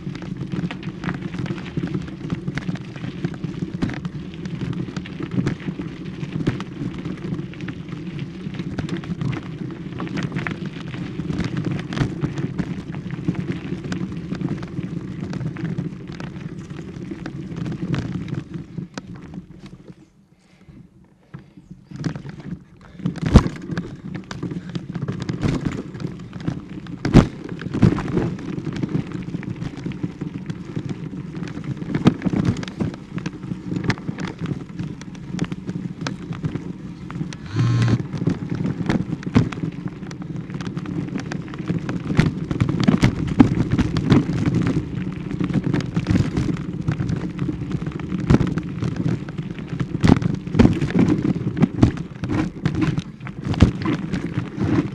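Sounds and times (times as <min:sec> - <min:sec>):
camera handling rumble: 0:21.1 - 0:25.8, 0:37.3 - 0:38.3
short tone: 0:37.4 - 0:38.0.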